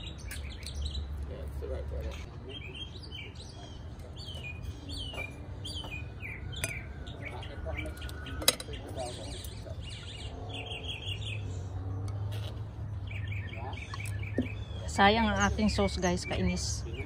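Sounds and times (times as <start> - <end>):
small birds chirping: 0.0 - 17.0
tongs clinking on ceramic plates: 8.0 - 9.6.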